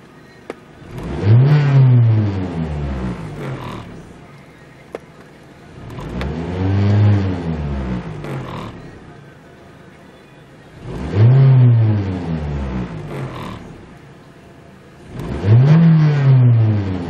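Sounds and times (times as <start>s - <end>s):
car engine revving: 0.8s - 4.4s, 5.7s - 9.2s, 10.8s - 14.3s, 15.0s - 17.0s.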